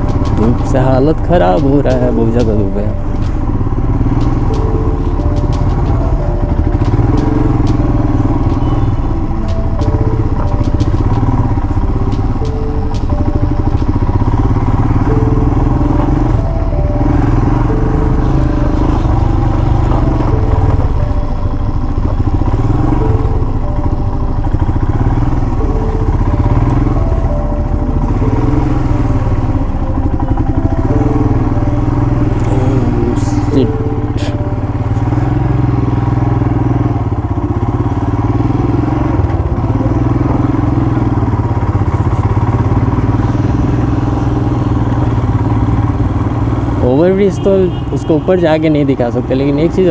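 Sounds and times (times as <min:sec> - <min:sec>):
motorcycle engine running: 0:00.0 - 0:49.9.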